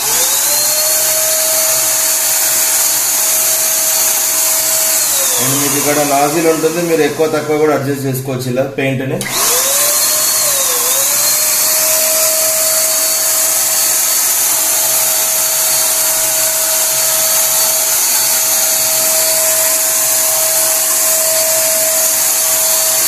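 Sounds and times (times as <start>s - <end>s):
electric paint sprayer hissing and whining: 0.0s - 8.0s, 9.2s - 23.0s.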